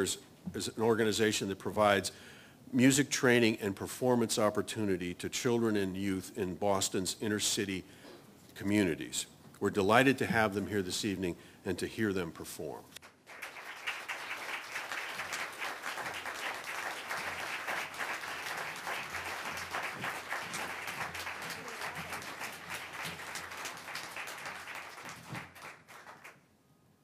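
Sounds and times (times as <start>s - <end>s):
audience applauding: 13.0s - 26.4s.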